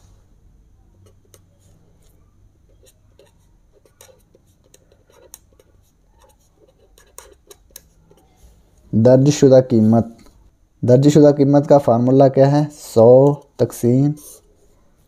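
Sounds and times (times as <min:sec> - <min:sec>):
pen scratching on paper: 0:01.0 - 0:08.6.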